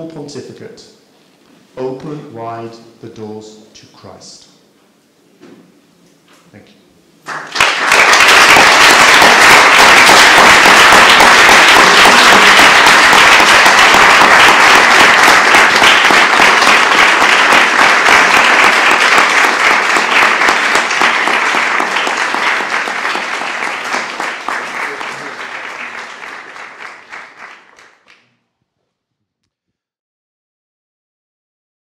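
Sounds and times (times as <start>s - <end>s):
audience applauding: 7.2s - 28.3s.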